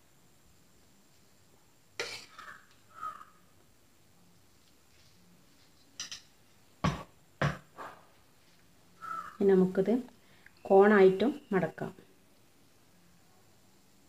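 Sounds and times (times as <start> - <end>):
spoon scraping: 2.0 - 2.6.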